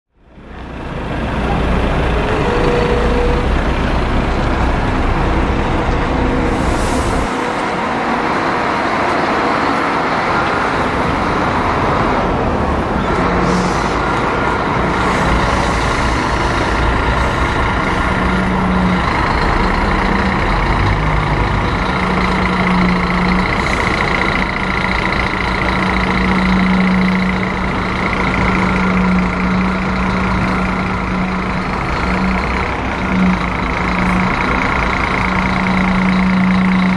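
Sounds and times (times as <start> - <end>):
diesel coach engine running: 0.1 - 36.9.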